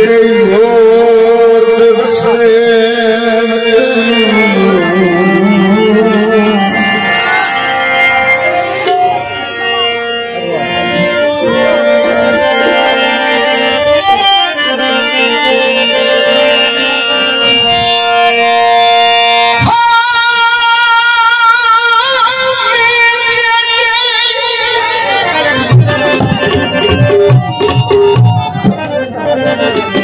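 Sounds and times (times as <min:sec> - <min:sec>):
man singing: 0:00.0 - 0:08.0, 0:19.4 - 0:25.7
harmonium: 0:00.0 - 0:30.0
tabla playing: 0:00.0 - 0:30.0.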